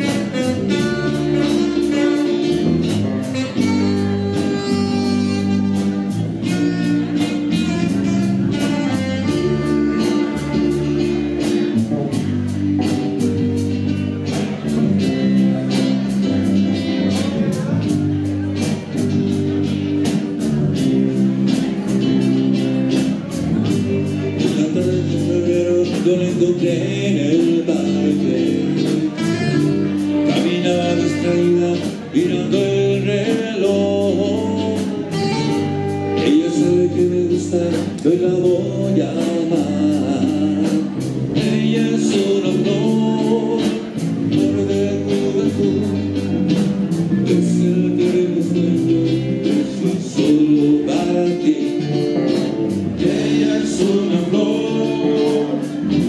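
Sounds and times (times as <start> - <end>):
saxophone: 0.0 - 13.6, 27.7 - 33.0, 33.6 - 38.0
live rock band: 0.0 - 56.0
man singing: 0.0 - 56.0.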